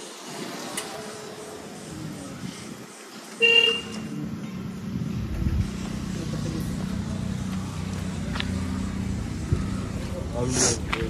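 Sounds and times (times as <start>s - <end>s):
vehicle engine running: 4.0s - 11.0s.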